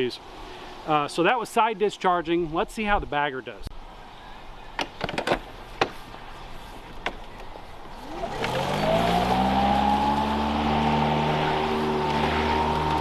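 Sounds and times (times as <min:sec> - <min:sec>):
lawn mower motor whining: 0:08.0 - 0:13.0.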